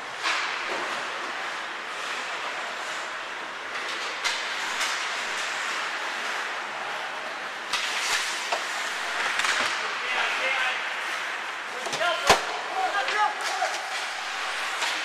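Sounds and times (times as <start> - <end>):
hockey sticks clacking on puck: 0.2 - 10.6, 11.3 - 15.0
skate blades scraping on ice: 7.8 - 11.5.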